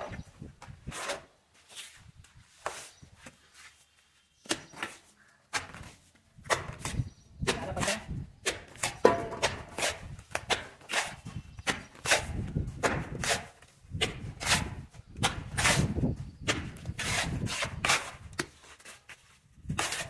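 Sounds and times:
trowel scraping mortar in metal pan: 0:08.8 - 0:12.4, 0:14.4 - 0:16.0, 0:17.0 - 0:18.3, 0:19.7 - 0:20.0.

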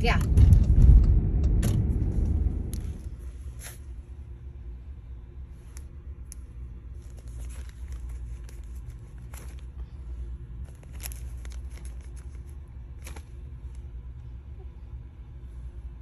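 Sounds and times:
car interior rumble: 0:00.0 - 0:03.5.

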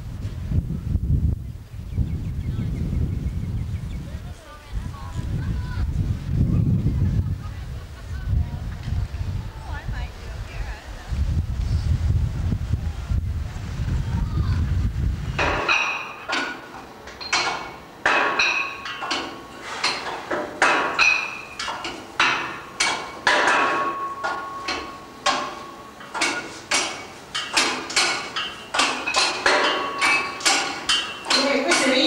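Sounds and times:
wind buffeting microphone: 0:00.0 - 0:16.5
sharp metallic clanks: 0:15.4 - 0:32.0.

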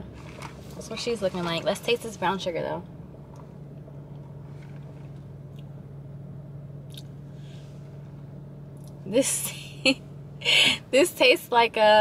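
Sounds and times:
low car cabin hum: 0:00.0 - 0:12.0.

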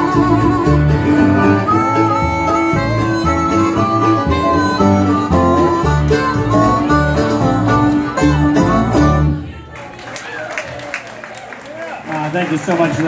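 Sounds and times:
strummed acoustic guitars: 0:00.0 - 0:09.4
upright bass walking line: 0:00.0 - 0:09.4
harmonica bending notes: 0:00.0 - 0:09.5.

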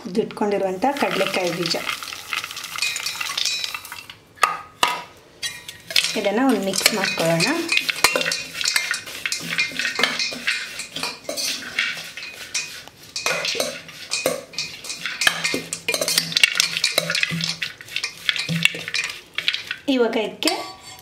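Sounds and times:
metal spoon scraping steel bowl: 0:02.8 - 0:04.1, 0:05.4 - 0:19.8, 0:20.4 - 0:21.0.

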